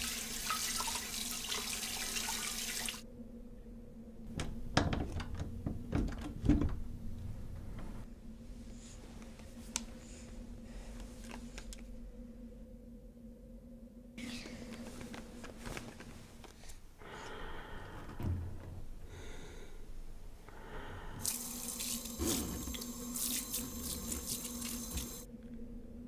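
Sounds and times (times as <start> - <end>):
faucet water running into sink: 0.0 - 3.0, 21.2 - 25.3.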